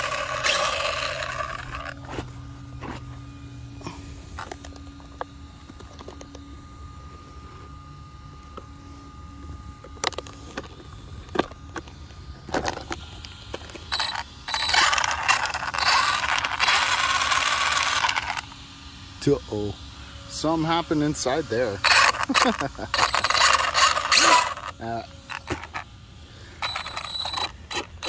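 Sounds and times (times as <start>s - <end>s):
loud rasping noise: 0.0s - 2.3s, 13.9s - 18.6s, 21.3s - 28.0s
rc car running: 0.0s - 3.1s, 9.8s - 28.0s.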